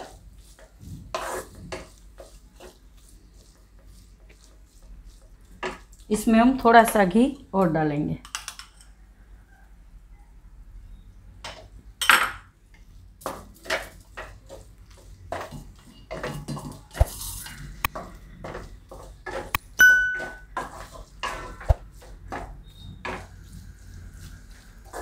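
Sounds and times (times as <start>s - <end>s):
spatula scraping metal pan: 0.0s - 5.9s, 20.2s - 21.7s
ringing ping: 19.8s - 20.4s.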